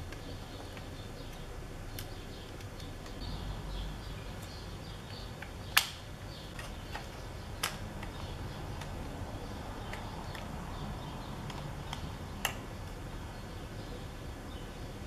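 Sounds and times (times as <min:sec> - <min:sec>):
plastic parts tapping and clicking: 0:05.1 - 0:09.2.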